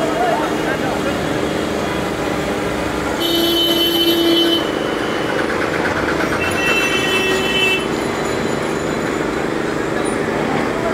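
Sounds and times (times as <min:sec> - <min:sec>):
street traffic: 0:00.0 - 0:10.9.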